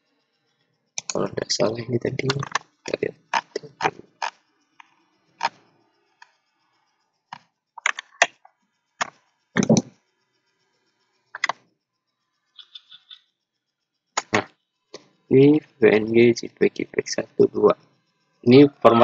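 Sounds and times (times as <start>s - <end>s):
computer mouse clicking: 7.8s - 8.4s, 9.0s - 9.9s, 11.4s - 11.6s.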